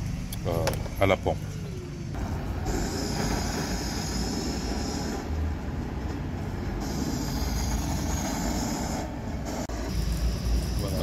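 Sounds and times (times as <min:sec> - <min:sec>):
blowtorch flame hissing: 0:02.6 - 0:05.2.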